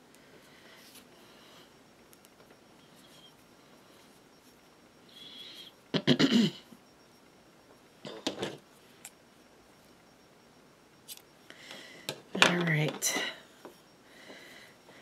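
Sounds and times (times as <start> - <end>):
person coughing: 6.0 - 6.7.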